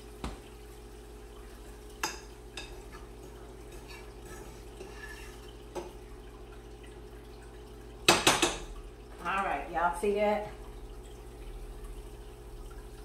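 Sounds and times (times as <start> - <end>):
spoon scraping frying pan: 2.0 - 6.0.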